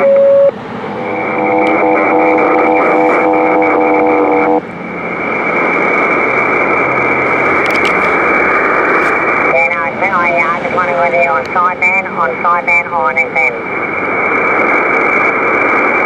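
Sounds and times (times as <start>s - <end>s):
radio static hiss: 0.0s - 4.6s, 6.1s - 16.0s
radio whistling tones: 0.0s - 4.6s.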